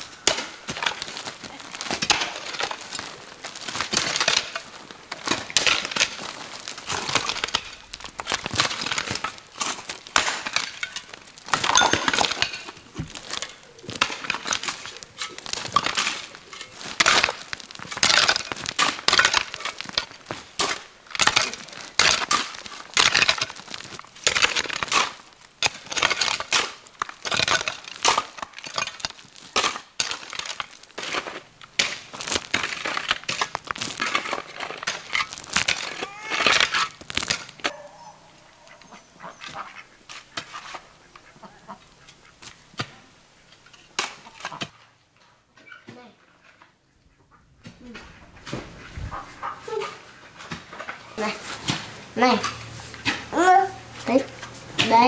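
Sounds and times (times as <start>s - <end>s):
pebbles scattering: 0.0s - 41.0s
hoes chopping stony soil: 0.2s - 37.9s.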